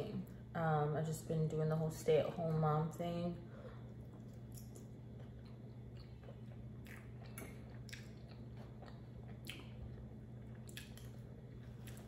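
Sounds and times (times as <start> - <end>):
person chewing food: 3.8 - 12.0.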